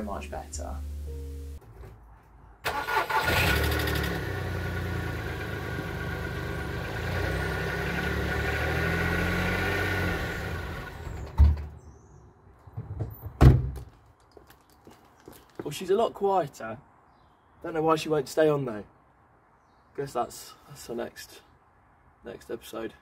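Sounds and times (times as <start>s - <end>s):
car engine starting and running: 2.6s - 11.8s.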